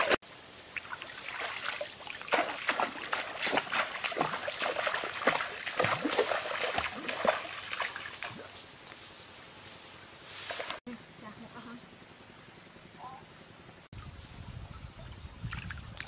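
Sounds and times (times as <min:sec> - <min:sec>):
river water splashing: 0:00.0 - 0:08.7, 0:10.3 - 0:10.8.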